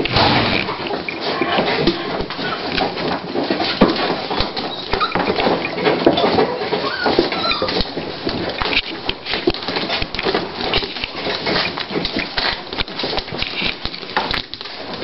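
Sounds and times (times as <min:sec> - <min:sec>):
faint dog squeaks: 0:04.7 - 0:05.3, 0:06.2 - 0:07.8.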